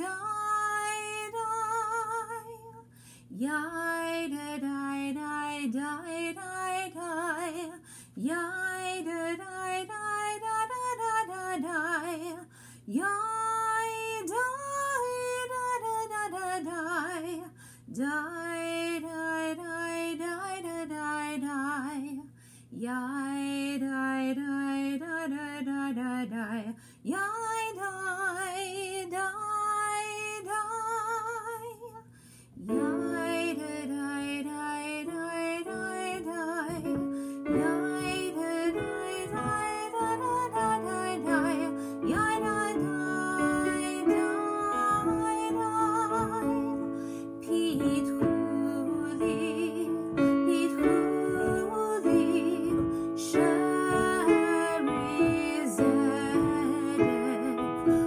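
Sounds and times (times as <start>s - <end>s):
woman singing a chant: 3.4s - 32.0s, 32.7s - 58.0s
piano chords: 32.7s - 58.0s.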